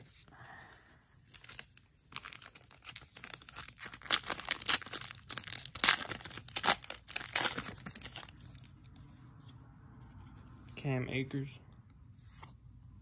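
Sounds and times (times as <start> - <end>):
foil wrapper tearing and crinkling: 1.3 - 8.7.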